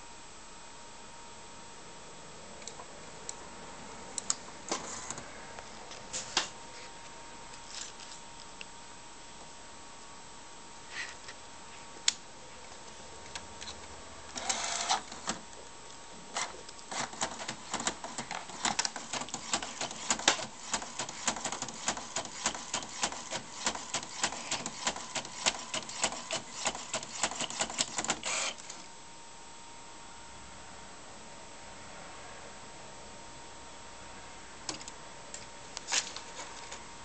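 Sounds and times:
printer clicking and whirring: 0:14.3 - 0:15.4, 0:16.3 - 0:28.8
printer pulling in paper whir: 0:14.3 - 0:15.4, 0:16.3 - 0:28.8.

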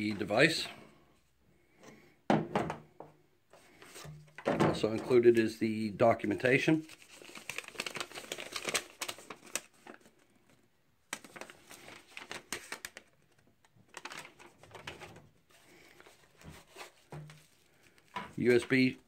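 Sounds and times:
paper and cardboard rustling: 0:06.9 - 0:18.9.

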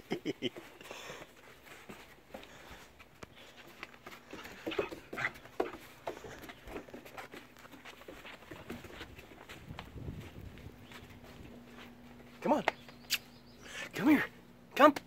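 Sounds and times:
dog claws tapping on wooden boards: 0:04.0 - 0:09.2.

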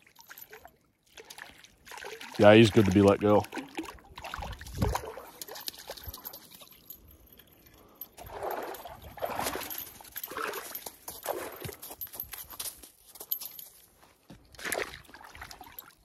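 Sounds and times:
fish splashing in shallow water: 0:00.0 - 0:06.8, 0:08.2 - 0:11.7, 0:14.6 - 0:16.0.

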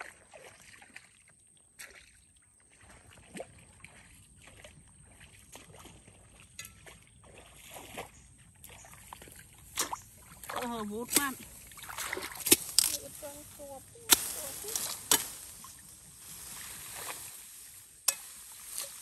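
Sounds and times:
water sloshing and lapping: 0:00.0 - 0:19.0.

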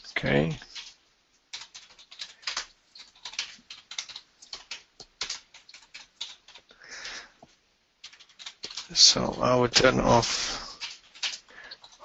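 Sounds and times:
computer keyboard typing: 0:00.0 - 0:07.3, 0:08.0 - 0:12.0.

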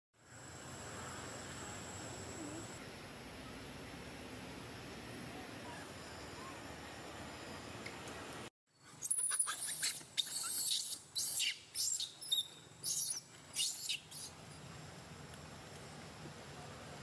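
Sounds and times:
baby monkey squealing: 0:09.0 - 0:14.3.

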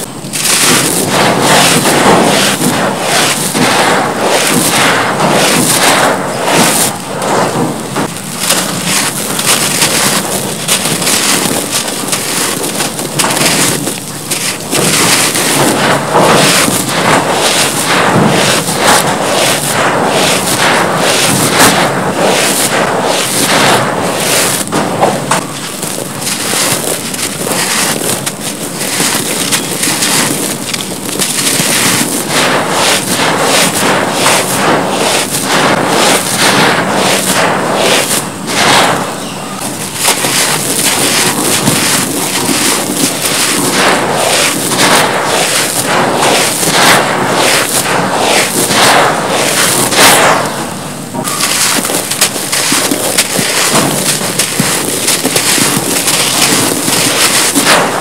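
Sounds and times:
hands crunching cement powder: 0:00.0 - 0:39.1, 0:39.7 - 0:58.0.

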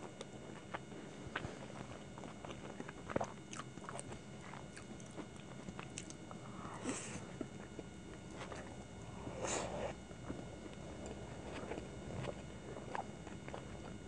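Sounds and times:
close chewing: 0:00.0 - 0:06.4, 0:10.2 - 0:14.0.

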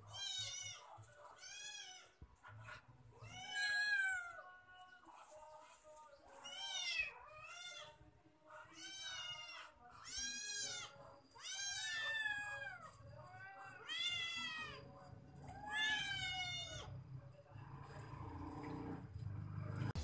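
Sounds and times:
cat meowing: 0:00.0 - 0:02.2, 0:03.2 - 0:04.4, 0:06.4 - 0:08.0, 0:08.6 - 0:14.8, 0:15.5 - 0:16.9.

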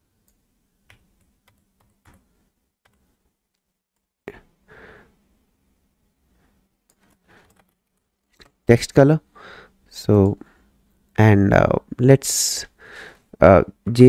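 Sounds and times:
keyboard and mouse clicks: 0:06.9 - 0:08.6.

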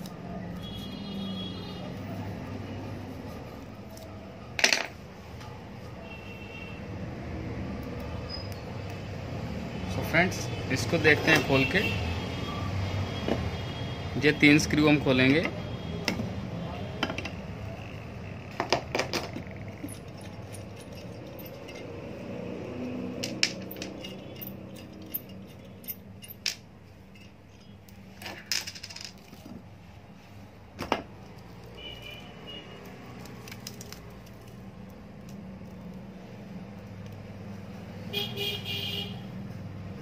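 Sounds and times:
small metal clicks and clinks: 0:19.3 - 0:22.3, 0:23.1 - 0:29.4.

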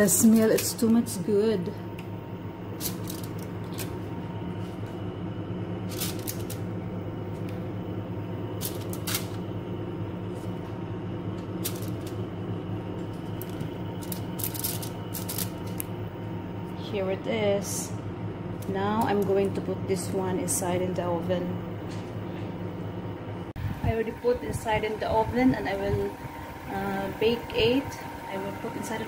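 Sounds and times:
steady low hum: 0:00.0 - 0:29.0
foil crinkling and tapping: 0:13.1 - 0:15.9.

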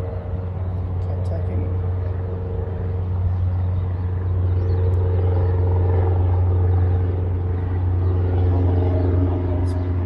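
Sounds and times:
faint steady hum: 0:00.0 - 0:10.0
wind buffeting microphone: 0:00.0 - 0:10.0.

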